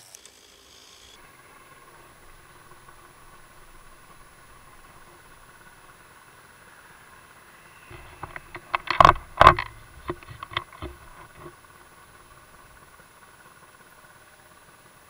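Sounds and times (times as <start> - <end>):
faint steady hum: 0.0 - 15.0
camera handling knocks and clicks: 7.9 - 11.5.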